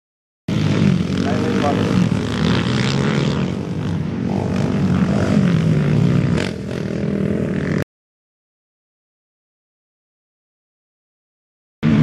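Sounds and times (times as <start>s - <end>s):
quad engines revving: 0.5s - 7.8s.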